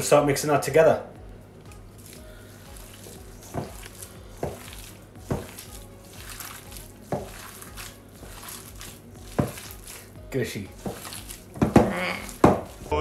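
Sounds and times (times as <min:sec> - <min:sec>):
hands squelching raw mince: 0:02.0 - 0:10.2, 0:10.8 - 0:12.9.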